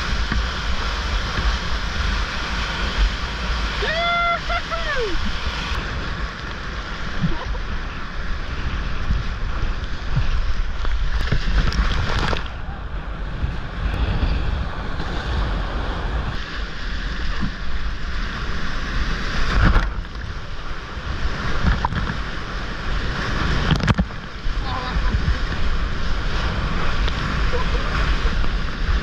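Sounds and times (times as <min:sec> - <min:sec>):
whitewater rushing: 0:00.0 - 0:29.0
wind buffeting microphone: 0:00.0 - 0:29.0
water splash: 0:09.1 - 0:12.6.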